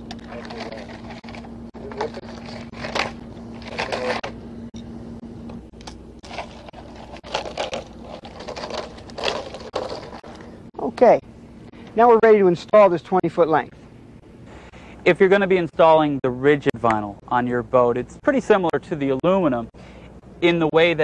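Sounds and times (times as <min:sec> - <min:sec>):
vinyl coil scraping on gravel: 0:00.2 - 0:04.4, 0:06.2 - 0:10.5.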